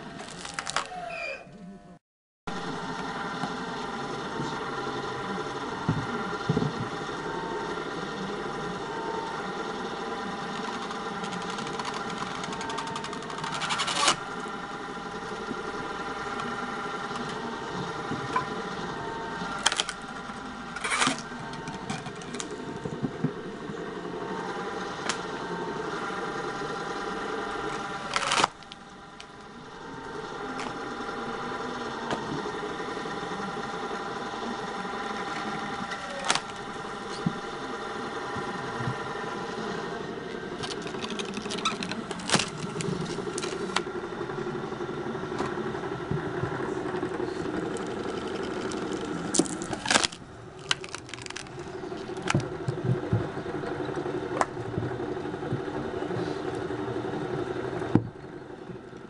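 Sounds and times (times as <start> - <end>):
electric motor humming: 2.5 - 59.0
logs splitting with loud cracks: 40.6 - 43.6, 47.8 - 52.6.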